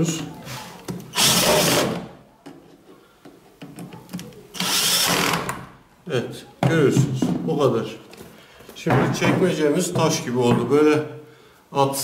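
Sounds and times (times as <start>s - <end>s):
cordless drill driving screw: 1.1s - 2.0s, 4.5s - 5.6s.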